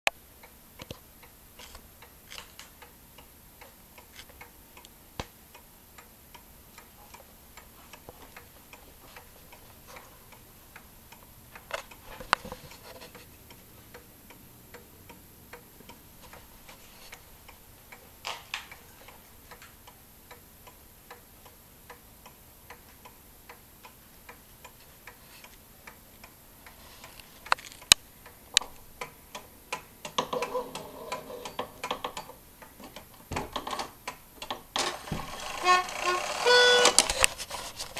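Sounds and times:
clock ticking softly: 0.1 - 37.3
clock clicks and knocks: 27.4 - 37.4.

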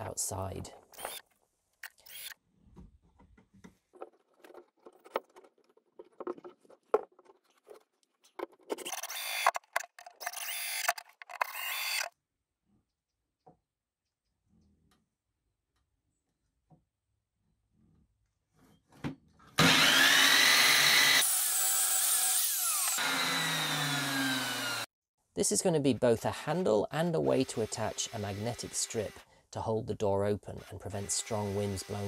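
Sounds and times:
cordless drill driving screws: 1.0 - 1.2, 1.8 - 2.4, 8.8 - 9.6, 10.2 - 12.1, 19.6 - 24.9, 30.6 - 32.0
timber knocking and scraping: 2.6 - 10.2.

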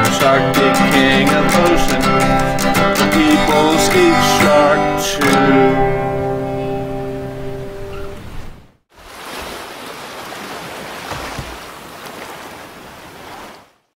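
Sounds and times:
acoustic guitar chord ringing: 0.0 - 8.2
ocean surf washing over sand: 8.9 - 13.8.

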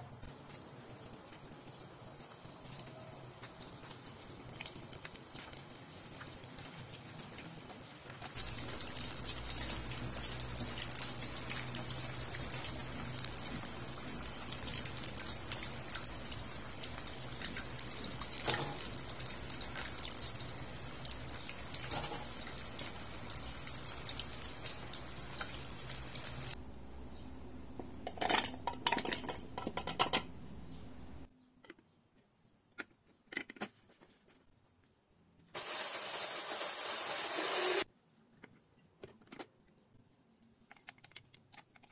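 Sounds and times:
deep-frying sizzle: 0.0 - 26.6, 35.6 - 37.9
clinks and knocks: 27.8 - 30.3.

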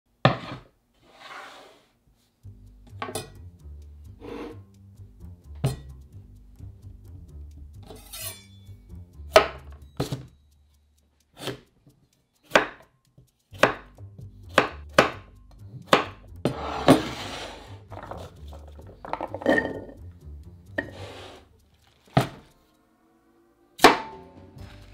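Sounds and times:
faint background music: 2.1 - 24.9
knife chopping on wooden board: 9.3 - 10.2, 12.5 - 12.8, 13.6 - 13.9, 14.5 - 15.2, 15.9 - 17.2
cubes scraped into glass bowl: 16.5 - 18.3, 20.8 - 21.5.

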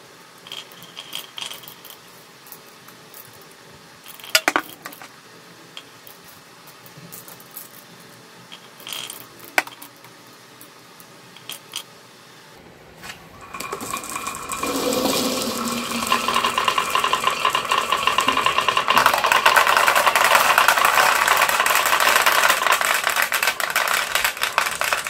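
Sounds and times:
glass marbles rolling and clacking: 13.4 - 25.0.

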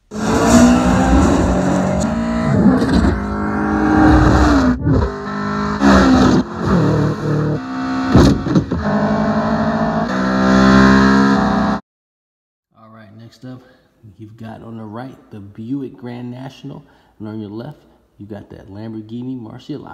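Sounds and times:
car engine revving: 0.0 - 11.8.

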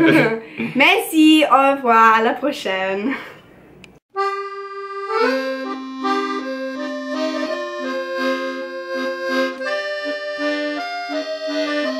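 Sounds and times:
instrumental background music: 4.2 - 11.9.

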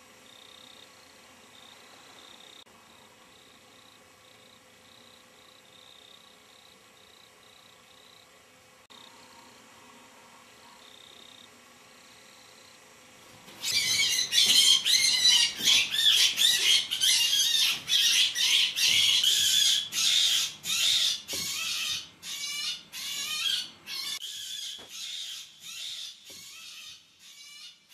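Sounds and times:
rabbit screaming in distress: 13.6 - 27.8.

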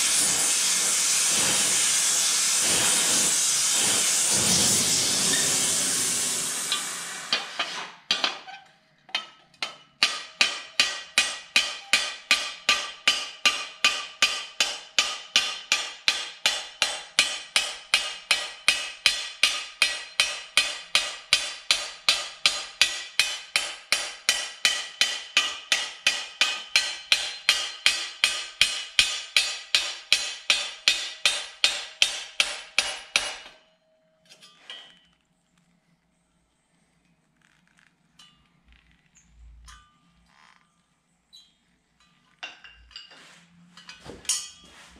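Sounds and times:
gas torch hissing: 0.0 - 7.6.

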